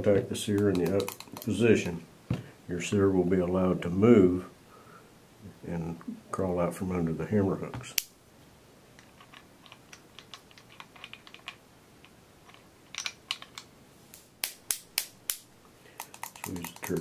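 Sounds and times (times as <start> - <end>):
metal pistol parts clicking: 9.1 - 13.7.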